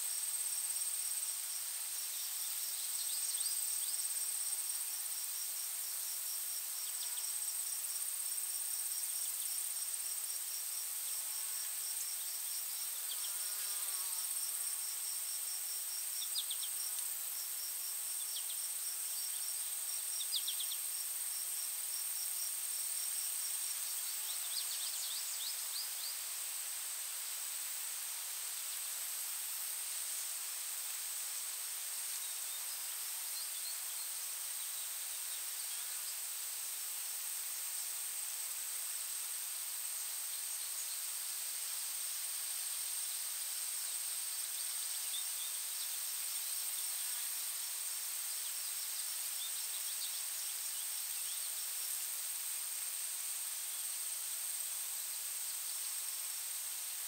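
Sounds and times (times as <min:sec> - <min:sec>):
insect rapid chirping: 0:00.0 - 0:57.0
soft steady hiss: 0:00.0 - 0:57.0
insect high-pitched trill: 0:11.4 - 0:26.2.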